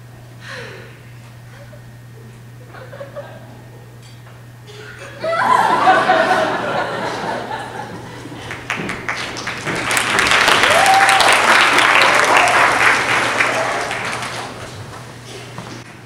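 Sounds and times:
audience applause: 5.5s - 15.0s.

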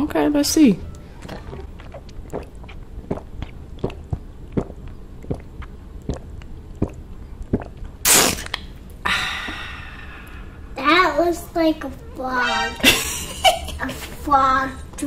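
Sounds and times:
loud slurp: 1.2s - 8.7s
person swallowing a drink: 1.2s - 8.8s
breathy exhale: 9.0s - 10.7s.

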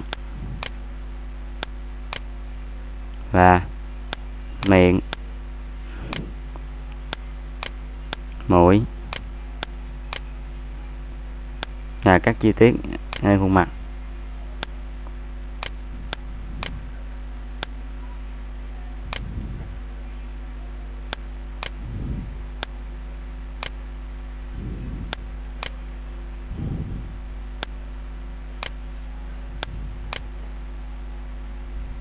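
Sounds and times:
electrical mains hum: 0.0s - 32.0s
soft low muffled sounds: 0.0s - 32.0s
computer mouse clicking: 14.6s - 16.8s.

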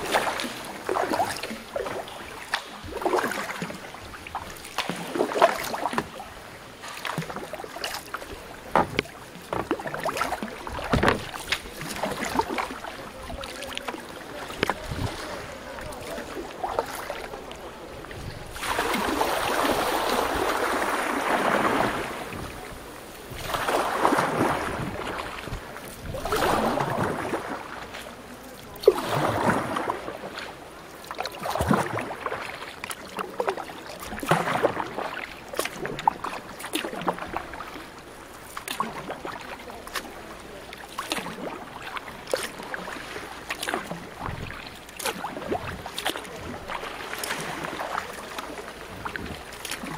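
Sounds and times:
water splashing around a canoe: 0.0s - 49.9s
small knocks: 8.7s - 9.8s.

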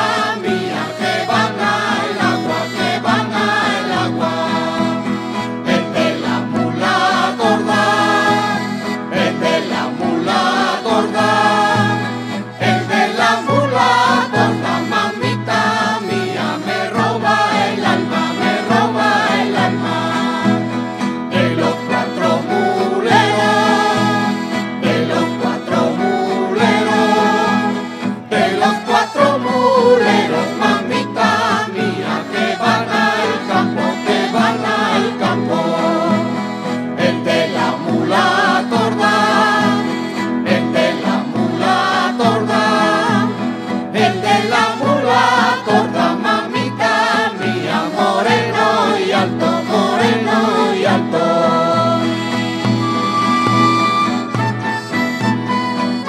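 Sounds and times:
group singing folk song: 0.0s - 56.0s
guitars and plucked strings: 0.0s - 56.0s.

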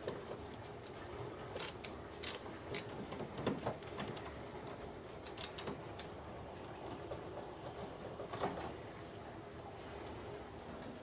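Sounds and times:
screwdriver turning a screw: 1.6s - 2.9s.

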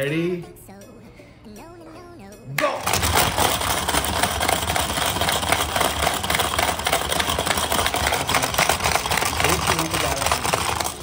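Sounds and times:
rattling marbles: 2.8s - 11.0s.

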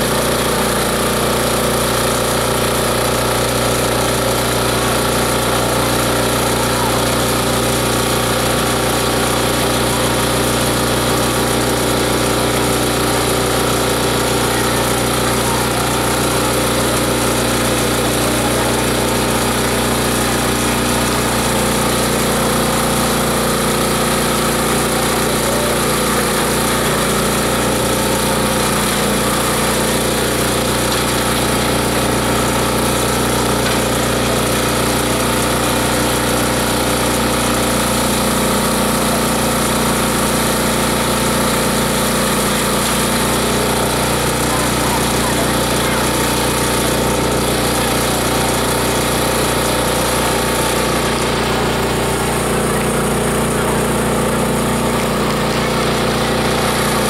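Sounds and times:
grinding machine hum: 0.0s - 57.0s.

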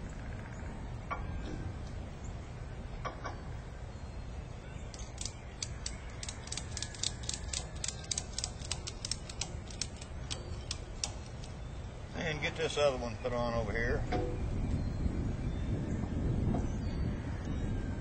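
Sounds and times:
ratchet strap clicking: 4.9s - 11.6s.

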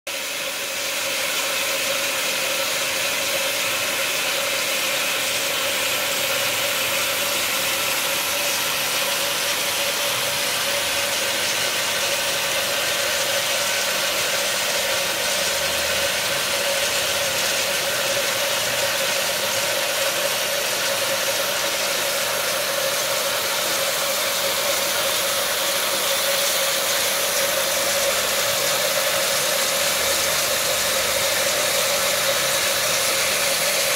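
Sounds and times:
electric water pump humming: 0.1s - 33.9s.

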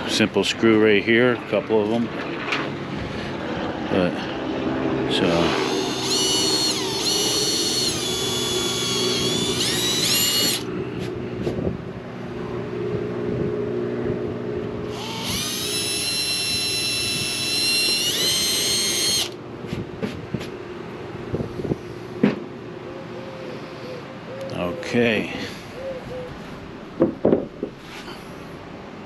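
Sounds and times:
cordless drill whining: 5.4s - 10.7s, 14.9s - 19.4s.

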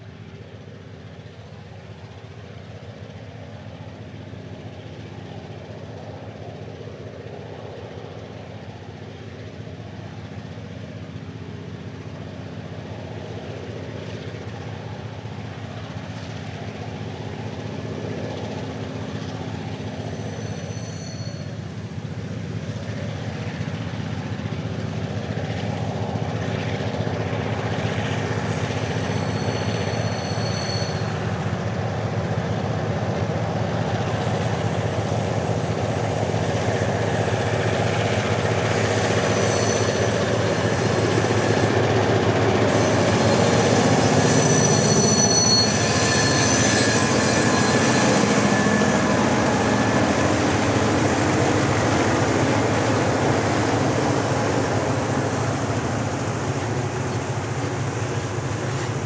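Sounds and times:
diesel locomotive engines working hard: 0.0s - 59.0s
wagons rolling with rail noise: 11.0s - 59.0s
high wheel squeals: 17.4s - 25.6s, 27.6s - 59.0s.

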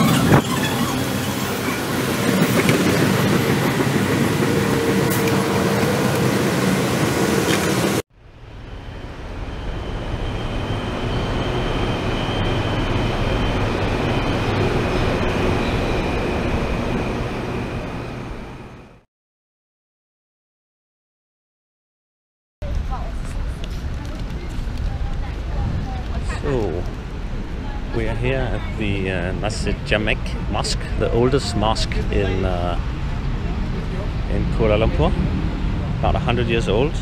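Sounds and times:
light-rail train rumble: 0.0s - 19.0s, 22.6s - 37.0s
station noise: 0.0s - 19.0s, 24.2s - 37.0s
faint high whine: 4.6s - 19.0s.

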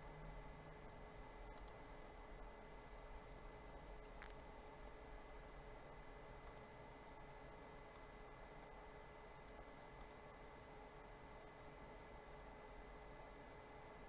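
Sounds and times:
faint steady tone: 0.0s - 14.0s
computer mouse clicks: 1.4s - 1.8s, 6.4s - 6.7s, 7.9s - 8.8s, 9.4s - 10.2s, 12.3s - 12.6s.

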